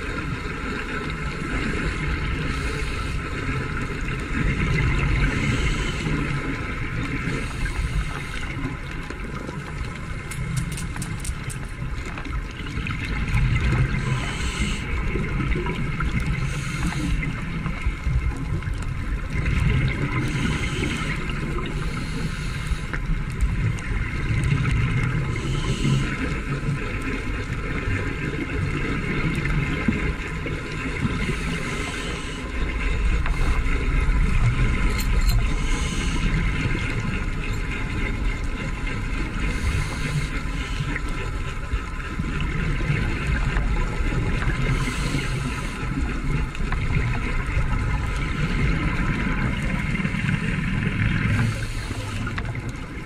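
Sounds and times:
underwater rumble of moving water: 0.0s - 53.0s
bubbling hiss: 1.6s - 8.8s, 13.1s - 18.7s, 19.3s - 28.2s, 28.8s - 41.5s, 42.7s - 53.0s.

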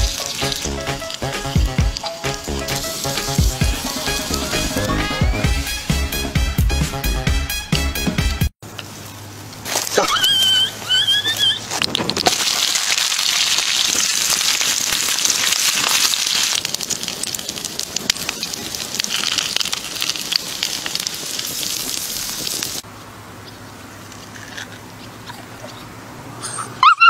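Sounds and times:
meat sizzling and crackling: 0.0s - 5.0s, 8.9s - 22.9s.

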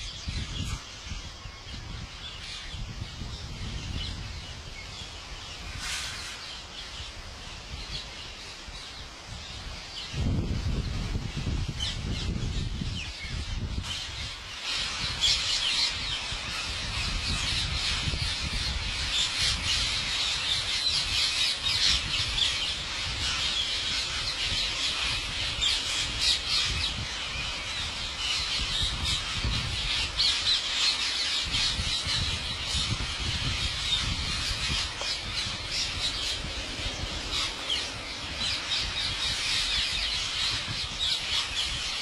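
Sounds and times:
parakeets screeching and chattering: 12.5s - 42.0s.

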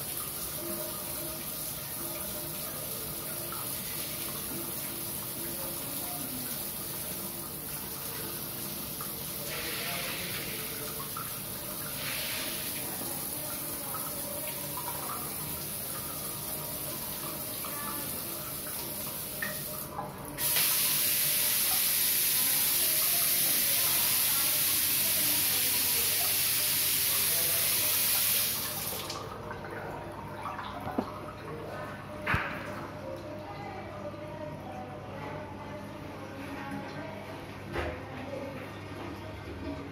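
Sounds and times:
shower water hissing: 8.5s - 13.4s, 19.1s - 29.2s.

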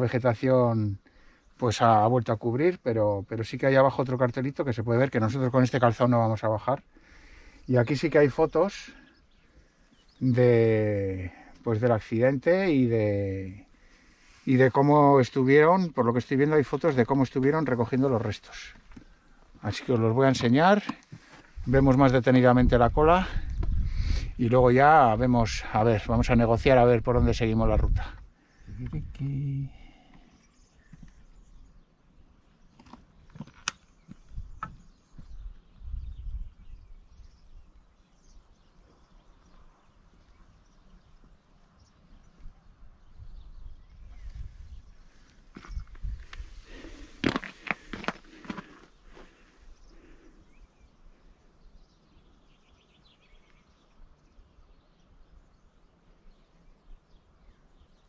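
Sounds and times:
faint outdoor ambience: 0.0s - 58.0s
low rumbles on microphone: 21.5s - 25.4s, 26.1s - 29.8s
faint bird chirps: 27.8s - 47.2s, 47.8s - 58.0s.

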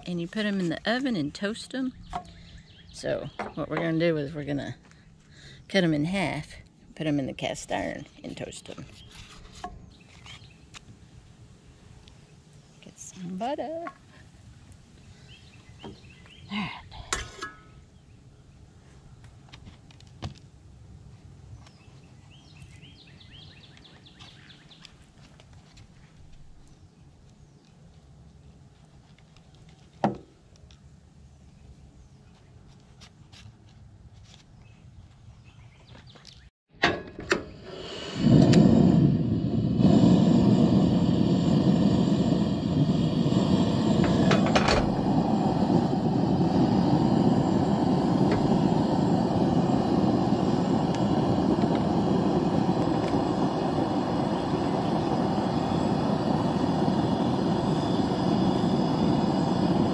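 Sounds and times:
gas stove burner rushing: 36.8s - 59.9s.

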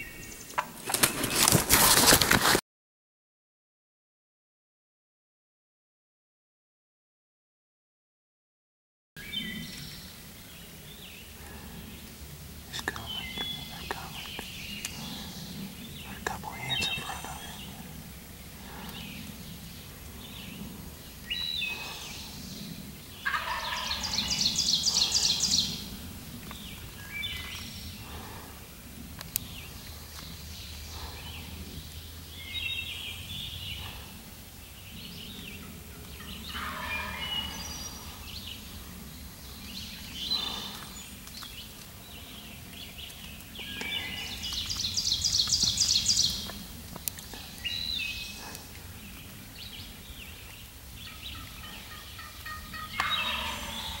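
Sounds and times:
songbirds chirping: 0.0s - 1.6s, 9.2s - 54.0s
turkey gobbling: 23.2s - 25.4s, 36.2s - 37.6s, 51.0s - 54.0s.

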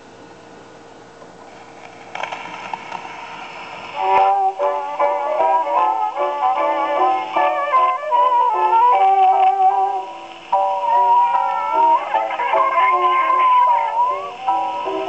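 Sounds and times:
record surface hiss: 0.0s - 15.0s
instrumental music on gramophone: 3.8s - 15.0s.

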